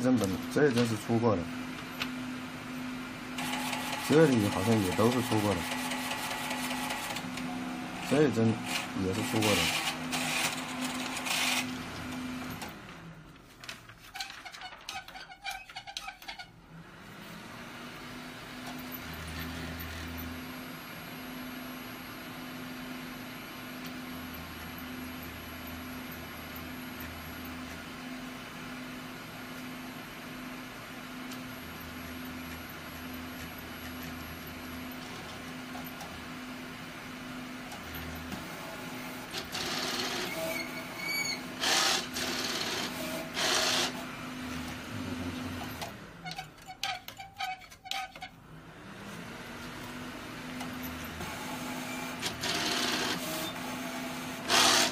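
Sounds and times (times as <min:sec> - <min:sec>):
printer mechanical hum: 0:00.0 - 0:54.9
low motor hums: 0:44.4 - 0:46.1.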